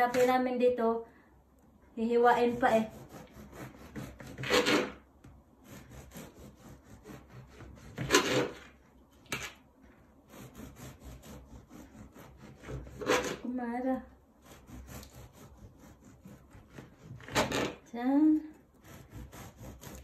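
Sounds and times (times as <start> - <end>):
knife sawing through bread: 2.4 - 5.0, 5.6 - 8.8, 10.2 - 13.5, 14.4 - 17.8, 18.7 - 20.0.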